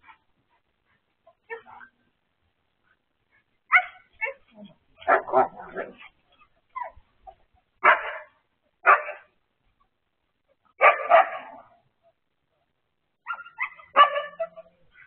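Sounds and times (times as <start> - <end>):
dogs barking and yipping: 3.3 - 9.3, 10.7 - 12.2, 13.2 - 15.0.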